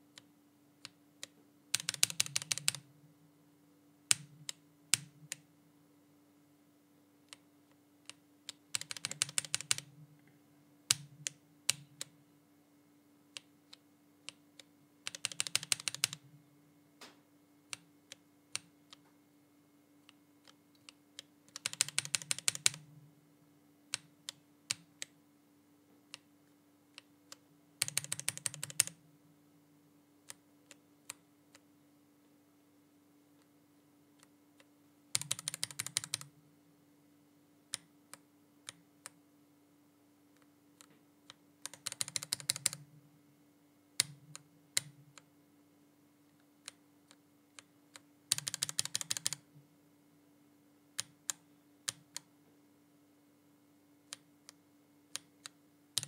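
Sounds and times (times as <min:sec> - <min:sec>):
mechanical keyboard key presses: 0:01.8 - 0:02.8, 0:08.7 - 0:09.9, 0:15.1 - 0:16.2, 0:21.5 - 0:22.8, 0:27.8 - 0:28.9, 0:35.2 - 0:36.3, 0:41.7 - 0:42.8, 0:48.3 - 0:49.4.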